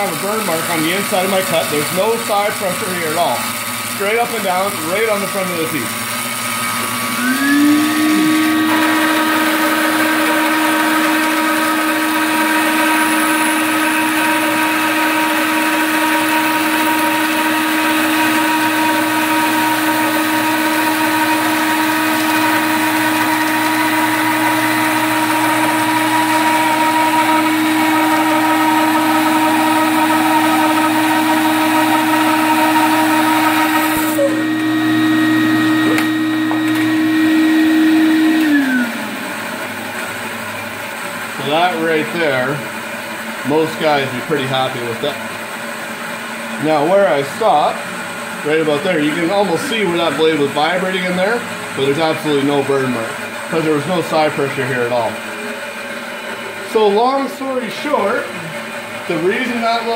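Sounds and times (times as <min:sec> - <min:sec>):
bandsaw motor hum: 0:00.0 - 0:59.9
saw blade cutting wood: 0:07.1 - 0:34.4, 0:48.6 - 0:50.4.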